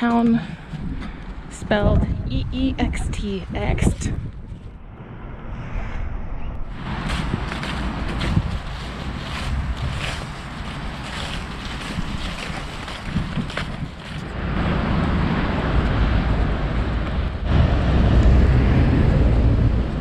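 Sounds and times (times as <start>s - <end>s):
wind buffeting microphone: 0.0s - 20.0s
soft footfalls: 6.9s - 14.3s.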